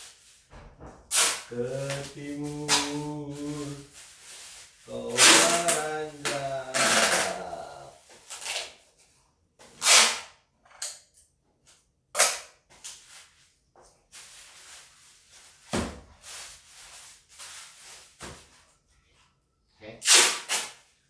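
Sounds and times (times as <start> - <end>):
packing tape ripping: 1.1 - 3.8, 5.0 - 7.6, 8.2 - 8.8, 9.8 - 10.3, 12.2 - 12.5, 20.0 - 20.8.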